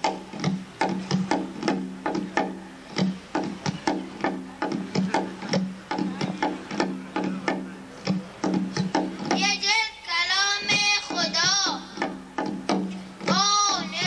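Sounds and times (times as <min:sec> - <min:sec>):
goblet drum rhythm: 0:00.0 - 0:14.0
child singing: 0:09.3 - 0:12.0, 0:13.3 - 0:14.0.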